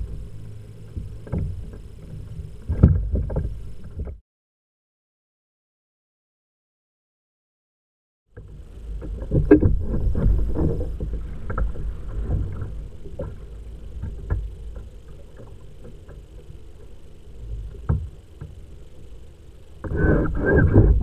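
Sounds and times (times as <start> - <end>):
water lapping against kayak hull: 0.0 - 4.2, 8.4 - 21.0
wind rumbling on microphone: 0.0 - 4.2, 8.4 - 15.4, 19.8 - 21.0
small knocks on hull: 0.9 - 4.2, 8.4 - 13.4, 17.6 - 18.6.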